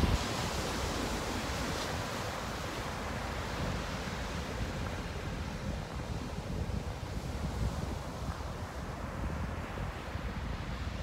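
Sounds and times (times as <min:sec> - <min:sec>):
waves breaking on beach: 0:00.0 - 0:11.0.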